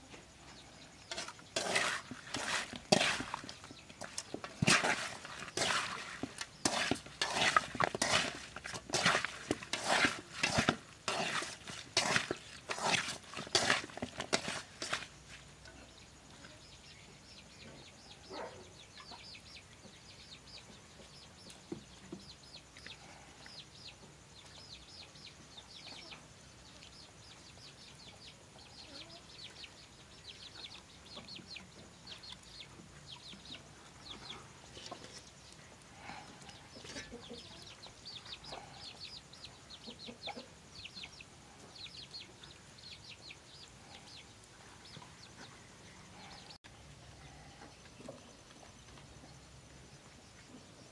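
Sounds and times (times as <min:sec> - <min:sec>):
hands mixing eels in a bowl: 0:01.1 - 0:15.4
chickens cheeping: 0:30.4 - 0:46.6.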